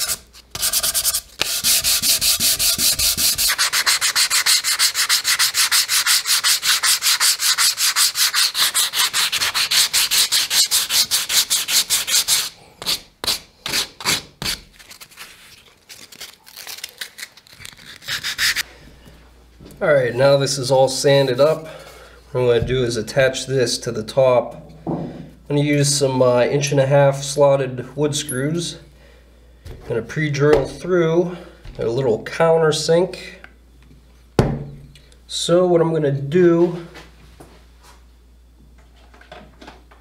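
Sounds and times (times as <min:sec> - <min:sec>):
sandpaper rubbing on wood: 0:00.0 - 0:14.6, 0:17.9 - 0:18.6.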